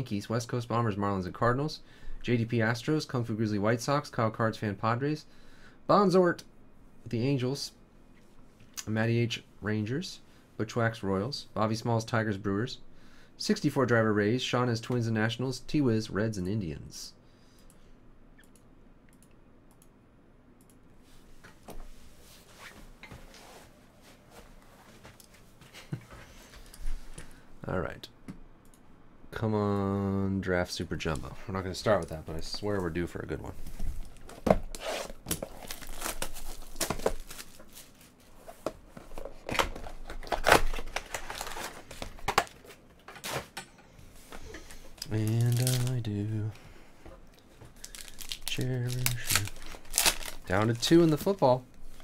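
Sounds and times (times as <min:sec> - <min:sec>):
rustling handling noise: 0:31.0 - 0:52.0
plastic wrap tearing: 0:34.8 - 0:38.0, 0:39.9 - 0:42.6, 0:45.0 - 0:46.1, 0:47.8 - 0:51.4
crinkling wrap and foil packs: 0:35.3 - 0:38.3, 0:39.2 - 0:43.2, 0:44.7 - 0:46.2, 0:47.8 - 0:51.4.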